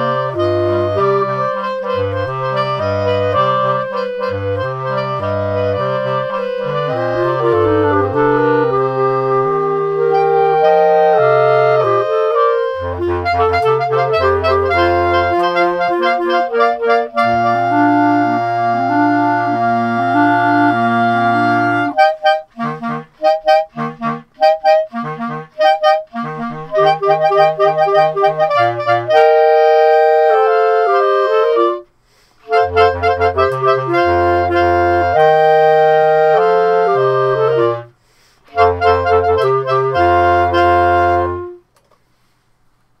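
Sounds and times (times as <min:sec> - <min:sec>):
clarinet quartet playing: 0:00.0 - 0:41.7.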